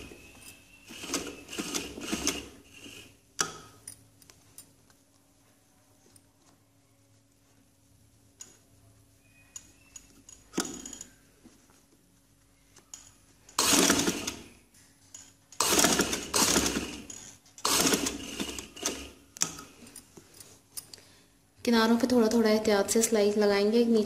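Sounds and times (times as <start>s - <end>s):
sewing machine stitching: 0.8s - 3.2s, 13.5s - 14.5s, 15.6s - 19.6s.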